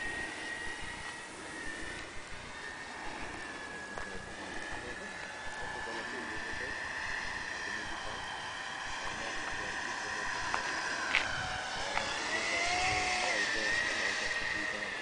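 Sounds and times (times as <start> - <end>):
electric ducted fan whining: 0.0 - 15.0.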